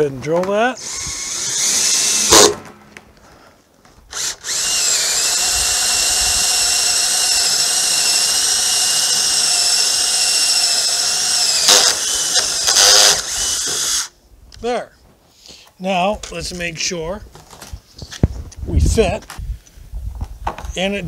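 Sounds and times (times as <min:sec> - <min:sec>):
cordless drill boring plastic: 0:00.8 - 0:02.5, 0:04.1 - 0:14.1.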